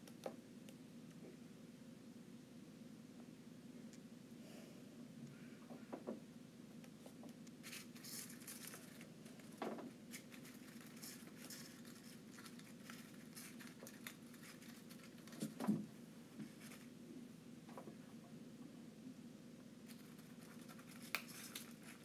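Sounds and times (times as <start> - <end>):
bird beak tearing paper: 7.6 - 9.0, 10.1 - 15.5, 19.9 - 22.0.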